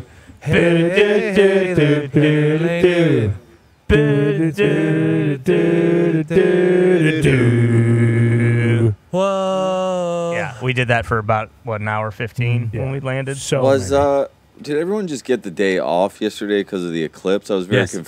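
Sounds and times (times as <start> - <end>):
man singing unaccompanied: 0.0 - 10.4.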